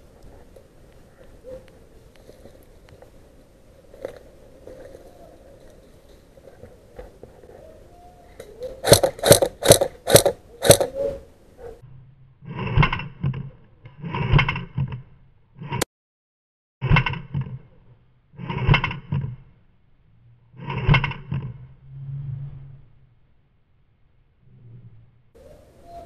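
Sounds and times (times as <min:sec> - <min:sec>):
low hum: 0:00.0 - 0:15.8, 0:16.8 - 0:26.0
dull repeated shot sounds: 0:08.8 - 0:10.9
airsoft rifle shots: 0:08.8 - 0:11.0.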